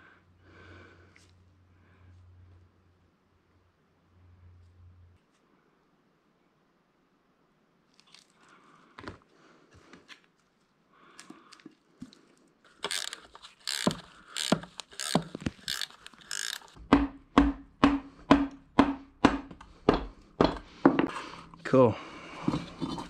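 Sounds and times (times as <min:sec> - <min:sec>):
parts being handled: 0:11.2 - 0:16.9, 0:22.3 - 0:23.0
ratchet wrench clicking: 0:12.8 - 0:16.8.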